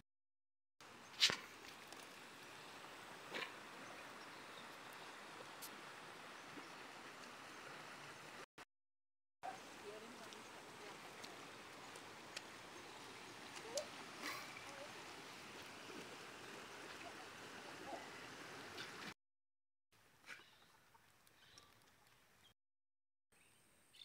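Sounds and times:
creek water flowing: 0:00.8 - 0:08.5, 0:09.4 - 0:19.2.

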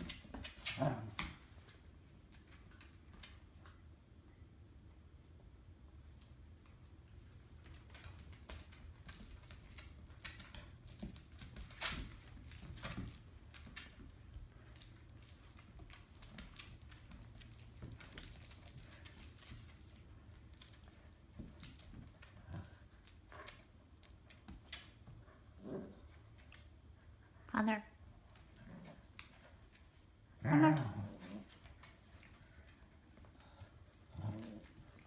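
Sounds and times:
dog claws clicking on hard floor: 0:00.0 - 0:03.4, 0:07.4 - 0:25.4.

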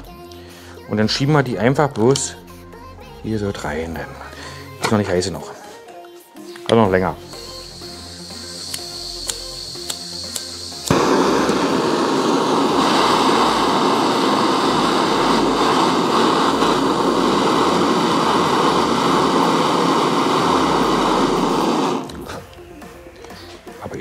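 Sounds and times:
lighter clicks: 0:06.5 - 0:22.6
blowtorch hissing: 0:07.0 - 0:23.8.

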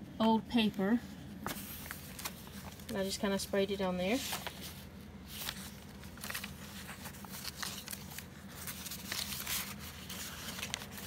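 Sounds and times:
paper pages rustling: 0:01.4 - 0:03.2, 0:04.0 - 0:11.0.

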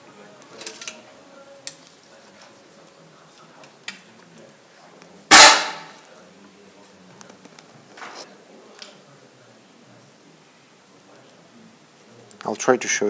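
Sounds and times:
air pistol shot: 0:05.3 - 0:06.0.

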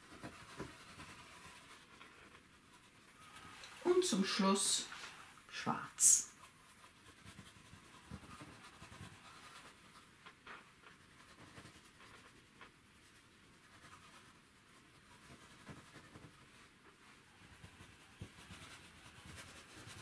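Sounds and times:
paintbrush rubbing on canvas: 0:00.0 - 0:20.0.

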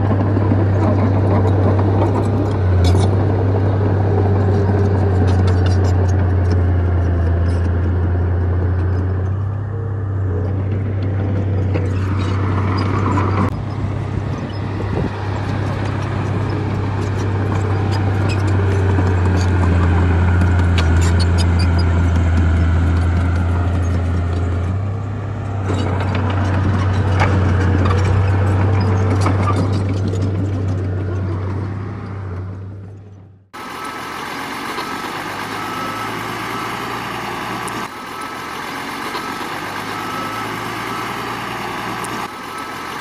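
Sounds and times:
diesel engine drone: 0:00.0 - 0:43.0.

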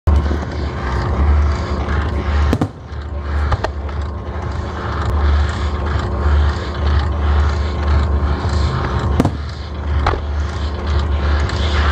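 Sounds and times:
fireworks rumbling and crackling: 0:00.1 - 0:11.9
sharp firework bangs: 0:02.5 - 0:02.8, 0:09.2 - 0:09.5.

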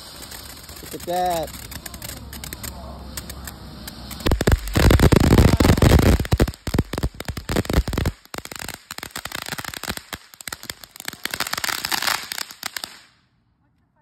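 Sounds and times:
firework fountain crackling: 0:00.0 - 0:13.2.

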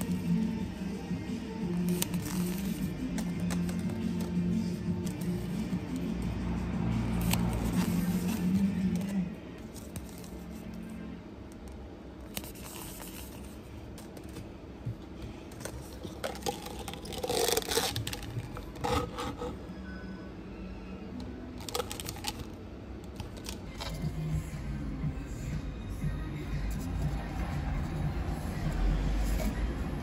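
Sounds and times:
paper cups scraping and rustling: 0:01.8 - 0:06.1, 0:07.1 - 0:10.8, 0:12.2 - 0:14.5, 0:15.5 - 0:19.6.

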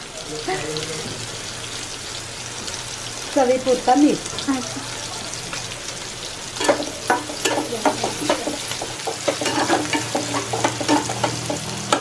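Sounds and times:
masala sizzling in a pan: 0:00.0 - 0:12.0
steel spoon scraping a pan: 0:06.6 - 0:12.0.

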